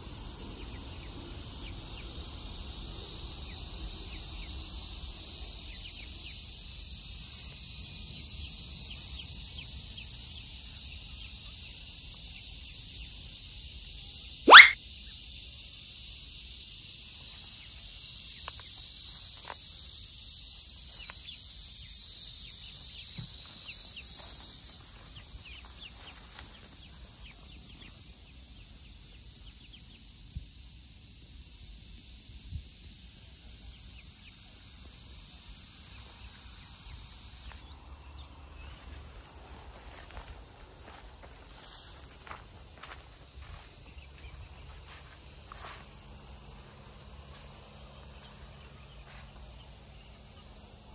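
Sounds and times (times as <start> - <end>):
insect chorus chirring: 0.0 - 50.9.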